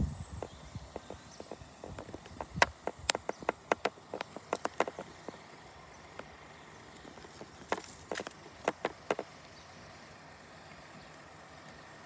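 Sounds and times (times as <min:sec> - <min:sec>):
faint steady background noise: 0:00.0 - 0:12.0
sharp clicks: 0:00.4 - 0:06.3, 0:07.2 - 0:09.3.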